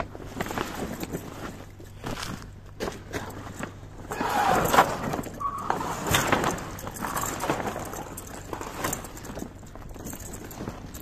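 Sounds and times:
tarpaulin curtain rustling and scraping: 0.0s - 11.0s
rollers clicking and squeaking: 3.2s - 11.0s.

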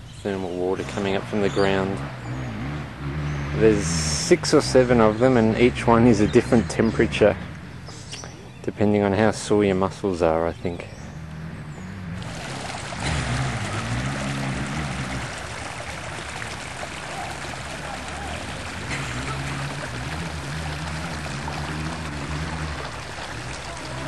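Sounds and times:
water splashing into a pool: 12.2s - 24.0s.

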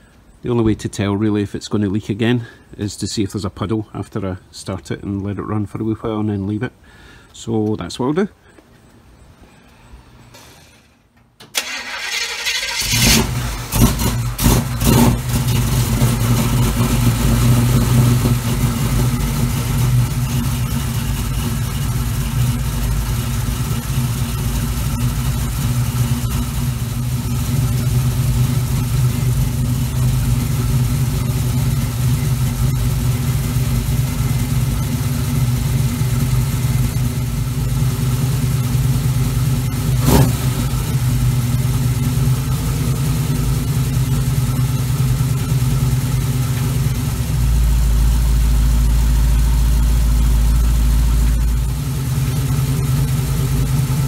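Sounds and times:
car engine revving and idling: 12.8s - 54.0s.

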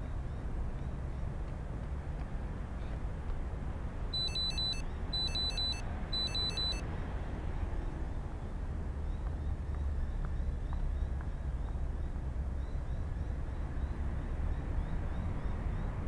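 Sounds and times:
road traffic rumble: 0.0s - 16.0s
high electronic beeps: 4.2s - 6.8s.

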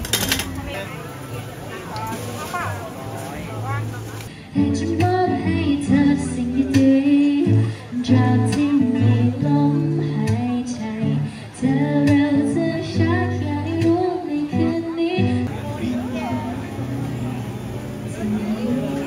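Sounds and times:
woman singing into microphone: 4.4s - 15.5s.

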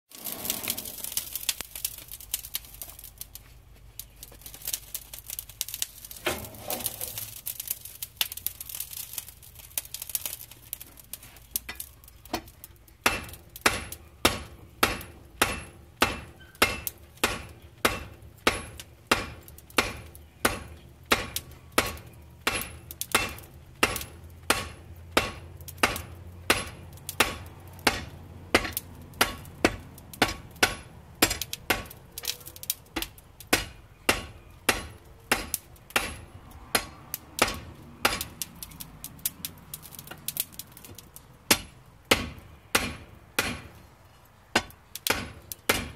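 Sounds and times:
hammer striking steel on anvil: 13.0s - 31.9s, 33.0s - 38.3s, 41.5s - 43.7s, 44.5s - 45.9s.

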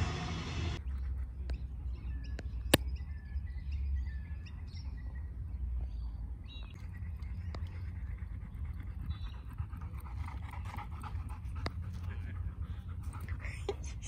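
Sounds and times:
low steady rumble: 0.0s - 0.8s
small birds chirping: 0.8s - 14.0s.

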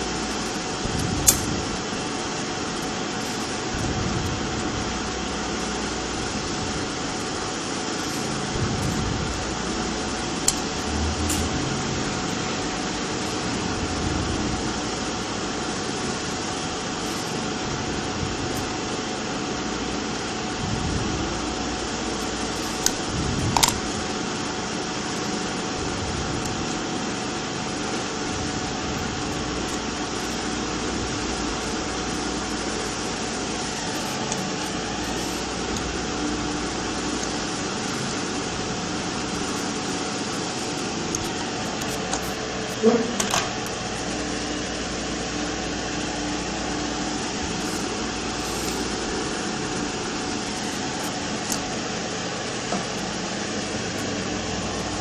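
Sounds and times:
electric fan running: 0.0s - 55.0s
faint steady whine: 0.0s - 55.0s.

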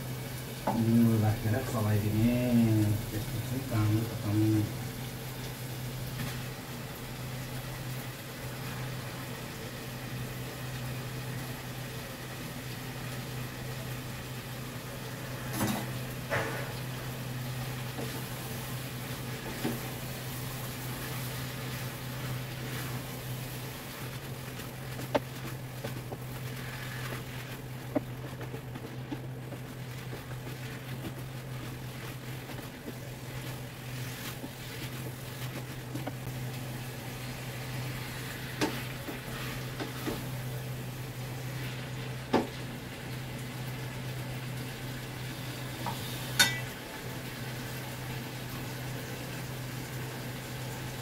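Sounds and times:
wooden spatula stirring in pot: 7.4s - 44.1s
steady low hum: 14.1s - 43.3s.

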